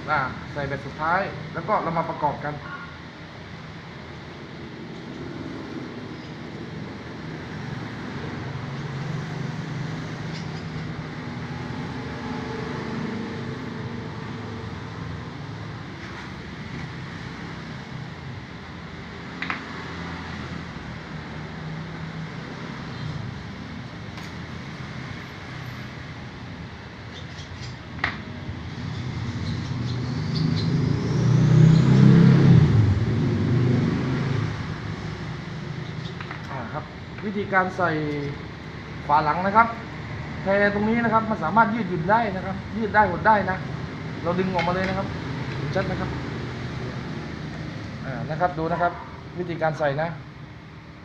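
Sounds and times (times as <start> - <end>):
vehicle engine rumble passing: 28.4 - 37.1.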